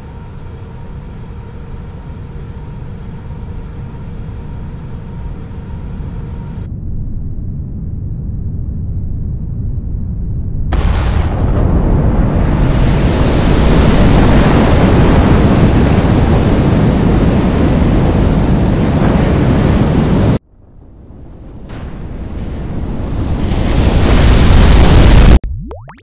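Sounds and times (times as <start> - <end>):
low rumble: 0.0 - 15.3
explosion blast rumble: 6.7 - 17.4.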